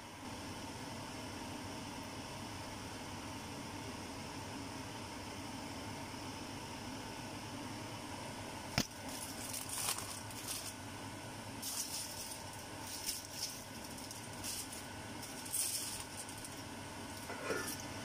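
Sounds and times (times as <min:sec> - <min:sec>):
background hum: 0:00.0 - 0:18.0
aluminium foil crinkling: 0:08.8 - 0:10.8, 0:11.6 - 0:17.8.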